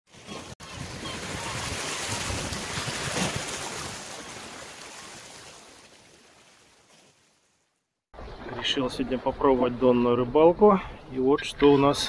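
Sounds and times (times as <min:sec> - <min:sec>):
sea waves washing: 0:00.1 - 0:07.4.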